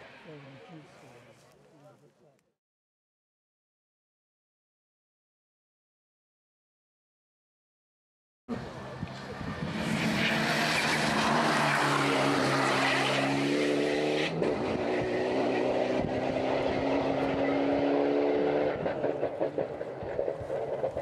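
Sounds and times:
car engine accelerating: 8.5s - 21.0s.

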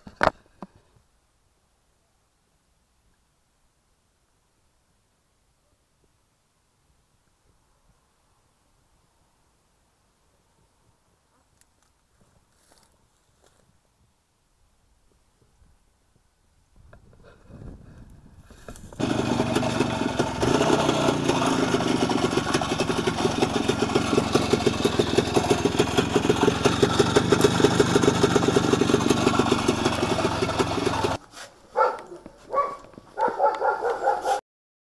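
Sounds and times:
two-stroke engine idling: 19.0s - 31.2s.

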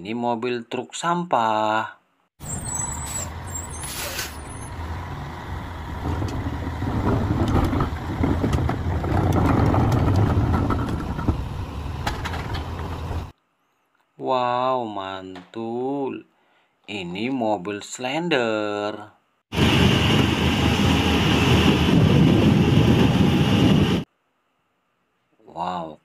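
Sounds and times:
garbage truck diesel engine: 2.4s - 13.3s
air brake hiss: 2.8s - 4.5s.

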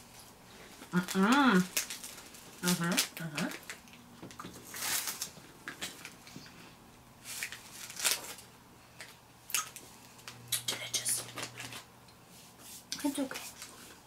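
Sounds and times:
plastic snack wrapper crinkling: 0.8s - 6.3s, 7.2s - 11.9s.

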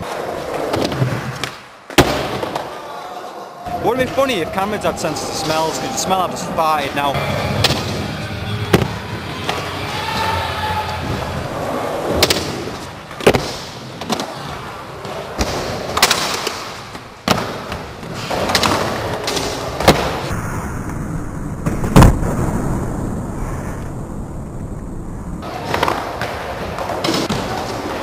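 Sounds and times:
skateboard wheels rolling: 7.6s - 21.0s, 24.6s - 28.0s.

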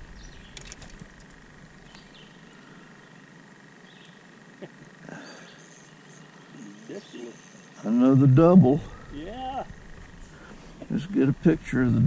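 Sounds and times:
faint bird chirps: 1.8s - 7.9s
faint steady high tone: 5.0s - 10.3s.

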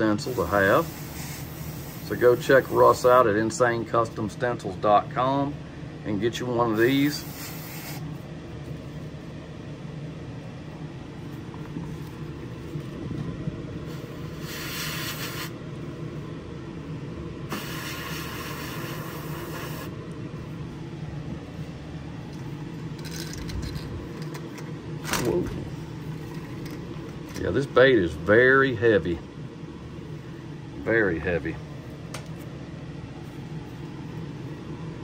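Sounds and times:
exhaust fan humming: 0.0s - 35.0s
airbrush spraying hiss: 0.2s - 3.2s, 6.8s - 8.2s, 13.8s - 15.6s, 17.5s - 20.0s.

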